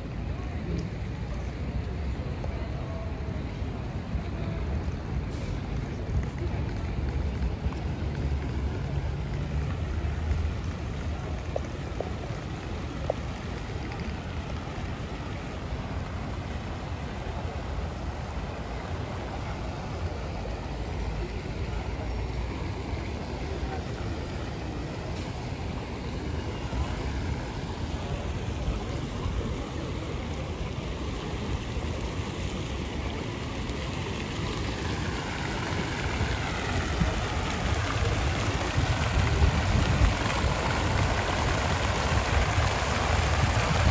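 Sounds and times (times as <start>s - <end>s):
fountain jets splashing into pool: 0.0s - 43.9s
wind rumble on microphone: 22.9s - 43.9s.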